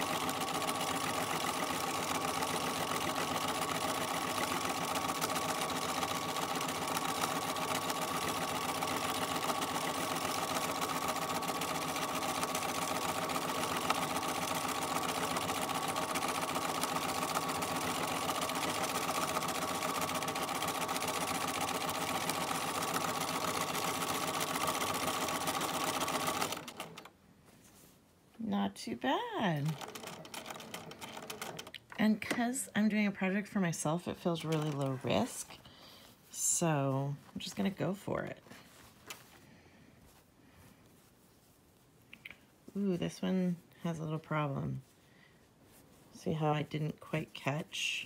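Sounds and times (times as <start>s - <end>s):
sewing machine running: 0.0s - 27.1s, 29.4s - 31.8s.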